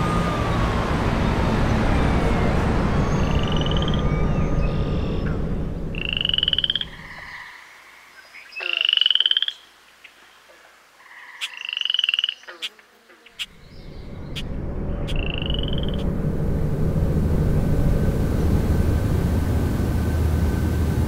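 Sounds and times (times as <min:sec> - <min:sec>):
low traffic rumble: 0:00.0 - 0:07.4, 0:13.3 - 0:21.0
frogs trilling: 0:03.4 - 0:04.1, 0:06.0 - 0:13.6, 0:15.1 - 0:16.0.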